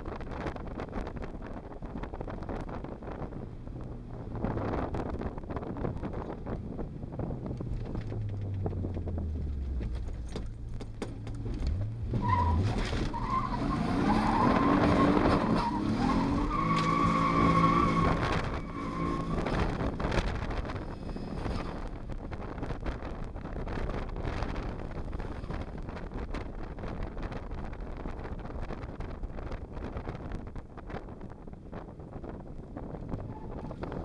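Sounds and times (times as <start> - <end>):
car engine revving: 7.5 - 21.9
high turbo whine: 11.2 - 26.0.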